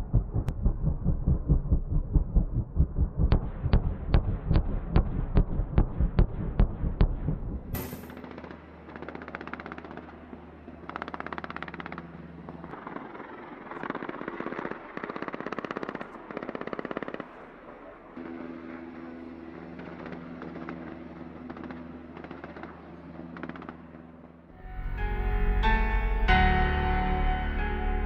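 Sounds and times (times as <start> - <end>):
helicopter engine and rotor hum: 7.4 - 24.6.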